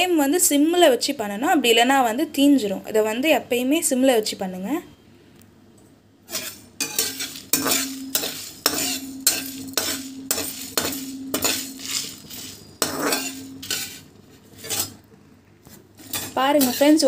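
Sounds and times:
spatula scraping metal pan: 6.3s - 15.0s, 16.0s - 17.0s.

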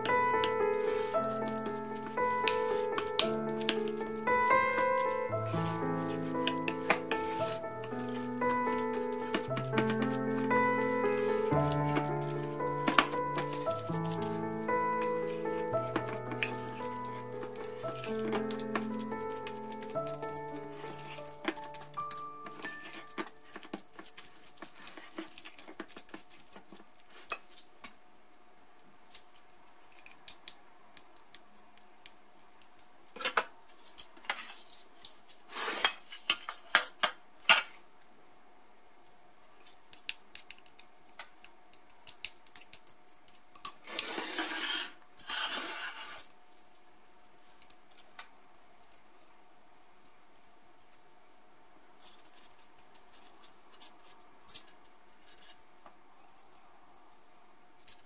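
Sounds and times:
rustling scrape: 0.0s - 27.6s, 33.8s - 36.7s, 43.8s - 46.4s
spoon scraping ceramic bowl: 2.4s - 3.7s, 43.6s - 46.2s.

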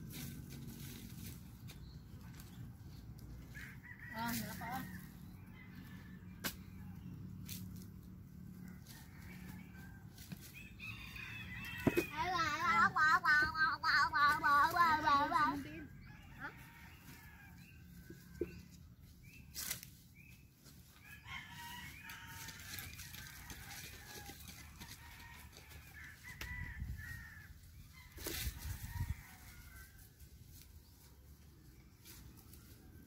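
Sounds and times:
rooster crowing: 21.1s - 27.5s.

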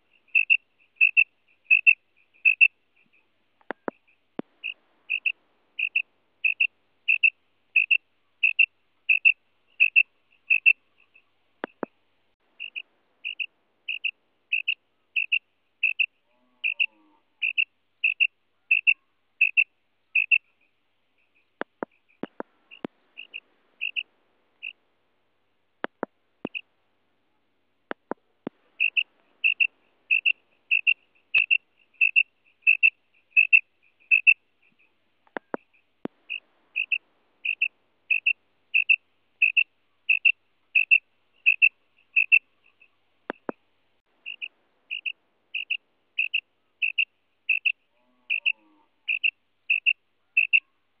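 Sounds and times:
quail krik call: 0.0s - 11.9s, 12.6s - 20.4s, 21.3s - 24.8s, 27.9s - 43.6s, 44.2s - 50.8s
sharp clicks: 3.6s - 6.0s, 11.6s - 12.0s, 21.6s - 24.0s, 25.8s - 26.6s, 27.9s - 34.3s, 35.2s - 37.6s, 43.3s - 43.6s.

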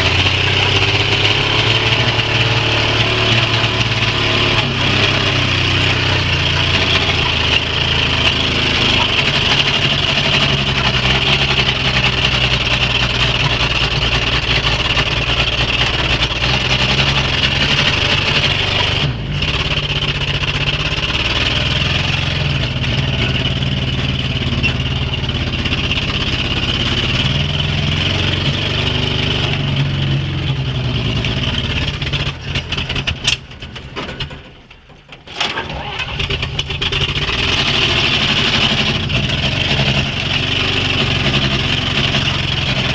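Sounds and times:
truck engine running: 0.0s - 42.9s.

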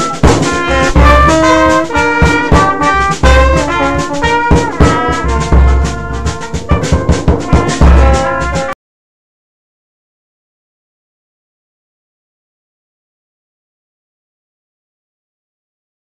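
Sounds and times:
brass band playing: 0.0s - 8.8s
drum strokes: 0.0s - 8.8s.

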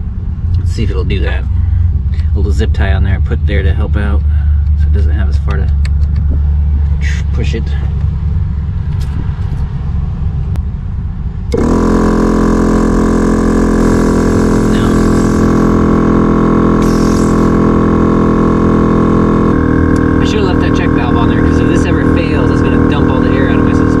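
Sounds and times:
low rumble: 0.0s - 24.0s
air compressor running: 11.5s - 24.0s.

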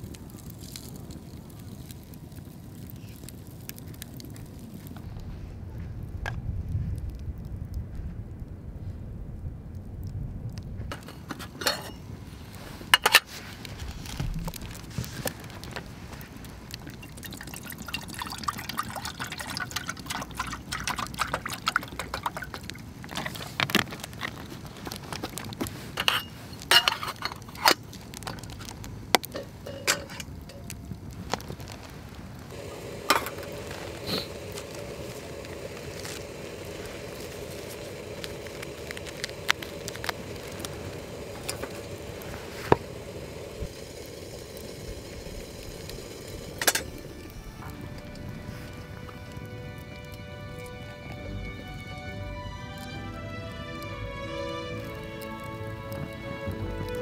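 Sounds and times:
metal cookware clinking: 10.9s - 12.0s, 13.0s - 13.3s, 26.0s - 27.8s, 29.3s - 30.6s
water poured into kettle: 16.0s - 24.4s.

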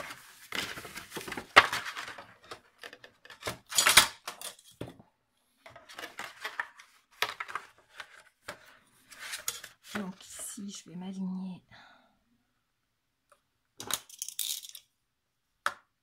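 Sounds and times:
paper envelope rustling: 0.0s - 2.6s.

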